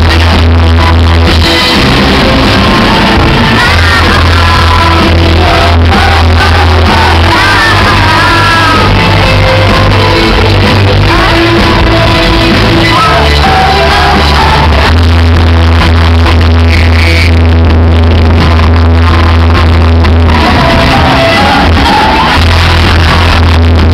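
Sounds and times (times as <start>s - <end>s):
drums: 0.0s - 23.9s
guitar: 0.0s - 23.9s
heavy bass: 0.0s - 23.9s
woman singing into microphone: 3.5s - 14.9s.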